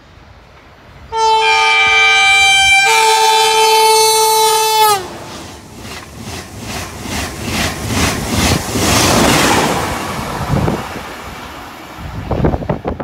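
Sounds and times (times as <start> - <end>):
train wheels beating rhythmically: 4.1 - 12.9
rush of air from train: 4.2 - 13.0
wind buffeting microphone: 5.1 - 13.0.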